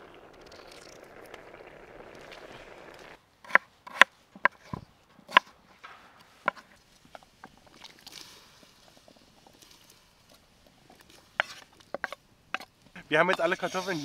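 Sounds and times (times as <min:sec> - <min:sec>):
soup pot simmering: 0:00.0 - 0:03.2.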